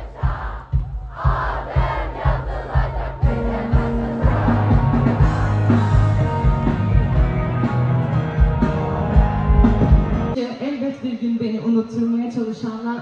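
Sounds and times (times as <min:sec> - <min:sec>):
steady drum beat: 0:00.0 - 0:10.4
rock band playing: 0:02.5 - 0:10.4.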